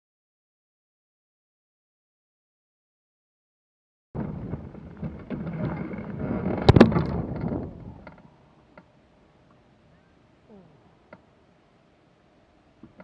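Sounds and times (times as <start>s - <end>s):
hang glider impacts: 4.2s - 10.2s.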